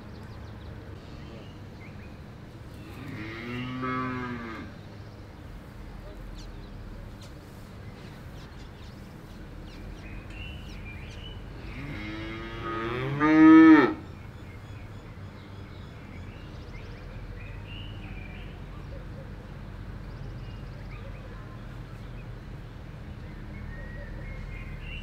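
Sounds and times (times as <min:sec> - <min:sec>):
outdoor background noise: 0:00.0 - 0:25.0
cow mooing: 0:02.8 - 0:04.8, 0:11.6 - 0:14.0.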